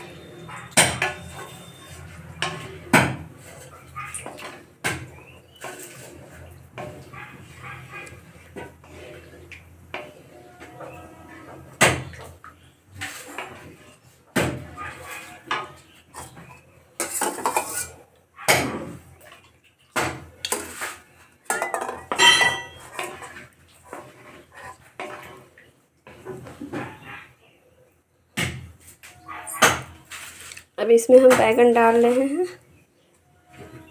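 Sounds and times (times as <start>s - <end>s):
spatula scraping metal pan: 0.0s - 18.0s, 20.5s - 27.2s
short metallic ring: 22.2s - 22.8s.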